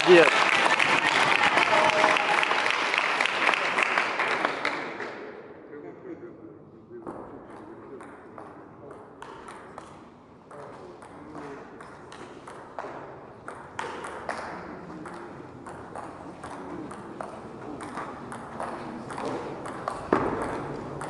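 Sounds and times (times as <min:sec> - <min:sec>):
ping pong ball clicking: 0:09.2 - 0:21.0.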